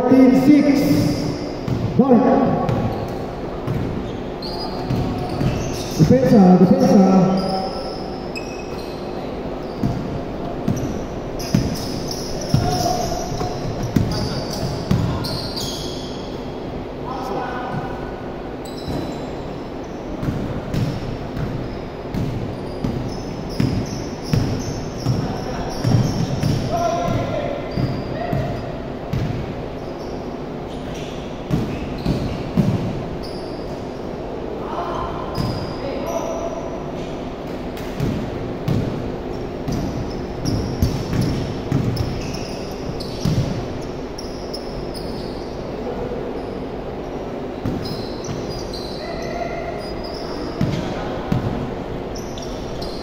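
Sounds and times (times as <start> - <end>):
sneaker squeaks: 0.1 - 53.0
basketball bouncing on wooden floor: 0.9 - 4.0, 20.2 - 29.4, 39.7 - 42.3, 43.0 - 43.6.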